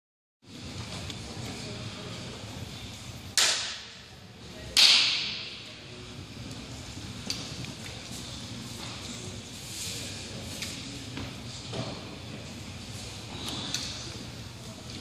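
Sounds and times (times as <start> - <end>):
sharp hand claps echoing: 3.3 - 4.0, 4.7 - 5.5.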